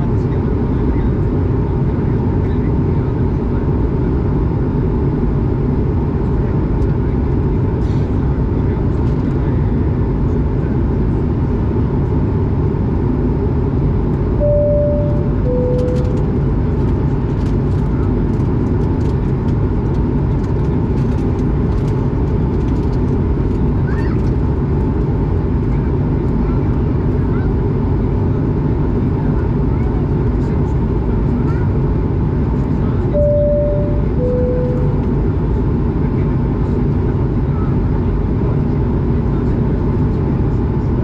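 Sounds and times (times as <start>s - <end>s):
jet engine drone in cabin: 0.0s - 41.0s
two-tone cabin chime: 14.4s - 16.3s, 33.2s - 35.1s.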